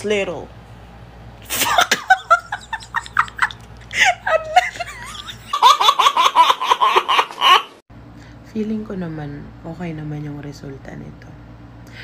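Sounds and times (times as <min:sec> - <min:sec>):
woman laughing: 0:01.5 - 0:07.8
baby belly laughing: 0:01.6 - 0:07.8.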